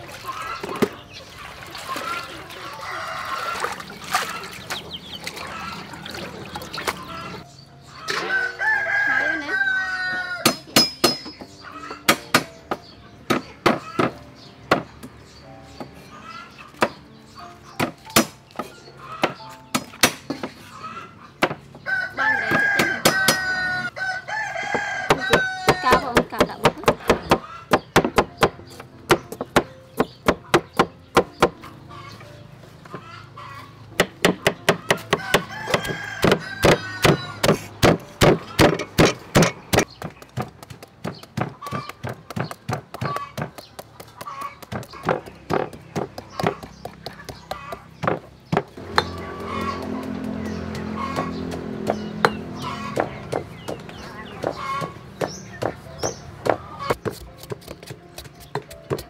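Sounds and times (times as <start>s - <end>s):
rooster crowing: 2.8s - 3.8s, 8.1s - 10.5s, 21.8s - 25.9s, 35.0s - 37.6s
knife chopping on wooden board: 24.8s - 31.6s, 34.0s - 59.0s.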